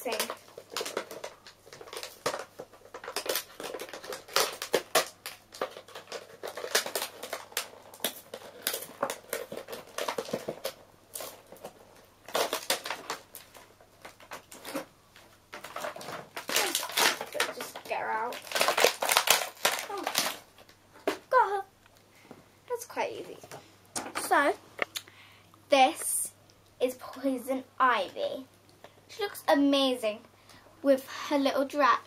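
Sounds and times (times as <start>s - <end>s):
toy packaging tearing and crinkling: 0.0s - 21.6s.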